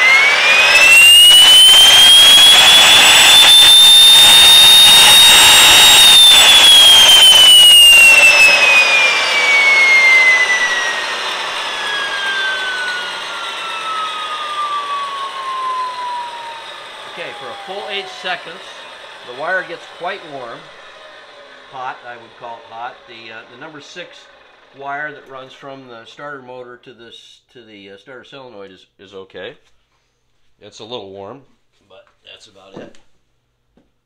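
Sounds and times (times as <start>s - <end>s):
gas turbine whine: 0.0s - 26.3s.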